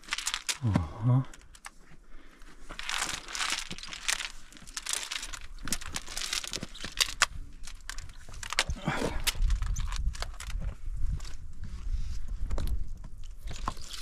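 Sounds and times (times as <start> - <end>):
clothing and gear rustling: 1.4 - 8.8.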